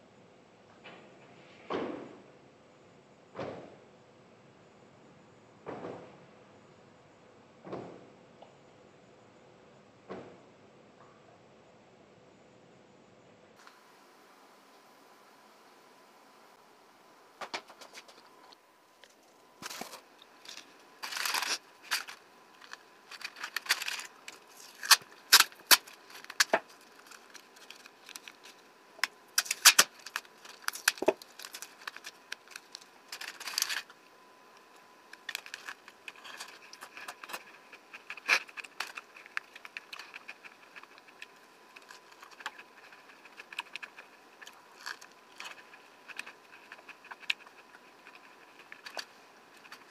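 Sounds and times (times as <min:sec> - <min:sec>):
aluminium foil crinkling: 0:19.2 - 0:34.0, 0:34.6 - 0:49.9.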